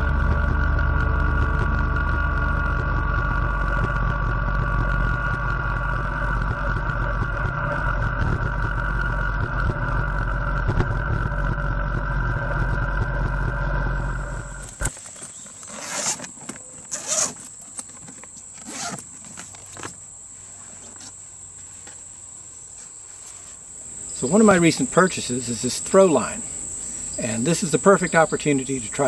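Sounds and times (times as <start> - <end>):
tractor diesel engine running: 0.0 - 15.6
engine whine: 0.0 - 20.1, 23.8 - 29.0.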